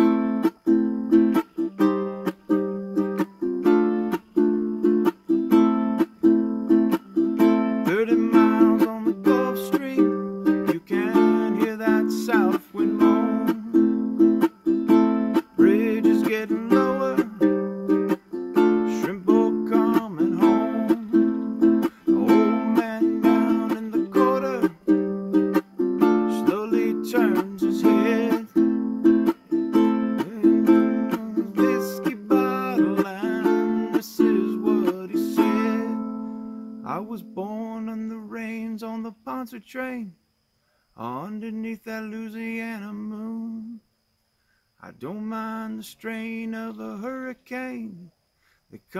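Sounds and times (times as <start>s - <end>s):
ukulele strumming and picking: 0.0s - 38.7s.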